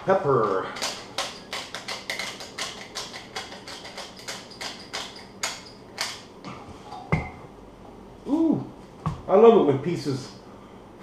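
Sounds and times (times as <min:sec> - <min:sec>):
pepper shaker rattling: 0:00.8 - 0:06.0.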